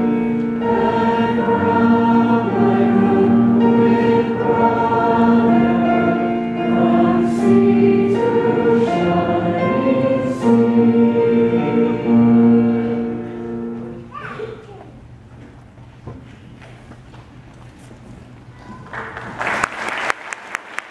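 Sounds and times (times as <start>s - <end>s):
choir singing long notes: 0.0s - 14.0s
piano accompaniment: 0.0s - 14.1s.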